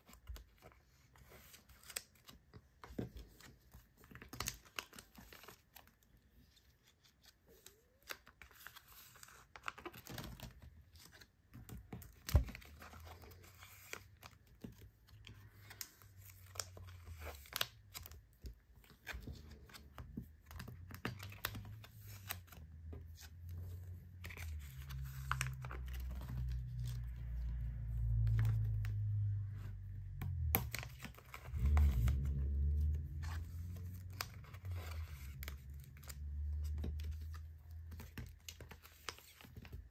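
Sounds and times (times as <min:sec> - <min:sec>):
low rumble: 0:25.1 - 0:37.3.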